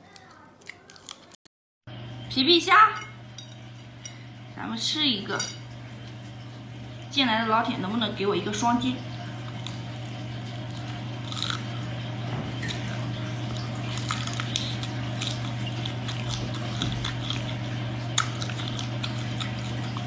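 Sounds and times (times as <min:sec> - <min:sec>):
wet chewing sounds: 0:00.0 - 0:01.4, 0:09.2 - 0:12.0, 0:12.6 - 0:20.0
steady low hum: 0:01.9 - 0:20.0
shrimp shells cracking: 0:10.6 - 0:12.0, 0:13.8 - 0:20.0.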